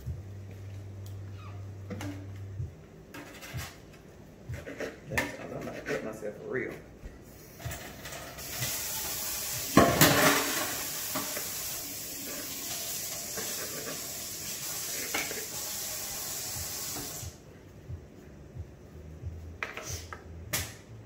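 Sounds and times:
faucet running into steel sink: 8.4 - 17.3.

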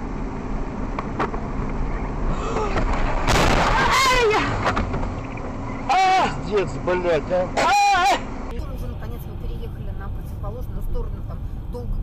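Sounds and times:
car engine and road noise: 0.0 - 12.0
sudden loud burst of noise: 2.8 - 4.6.

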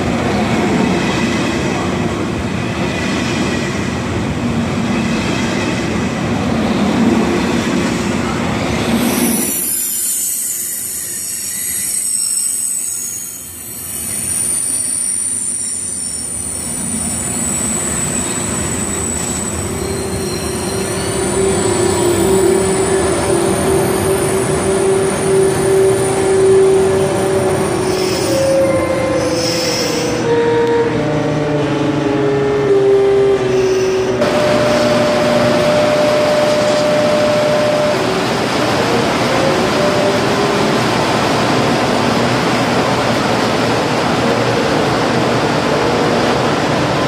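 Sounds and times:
train rumbling: 0.0 - 47.0
train wheels squealing: 8.8 - 30.5, 33.0 - 38.2.

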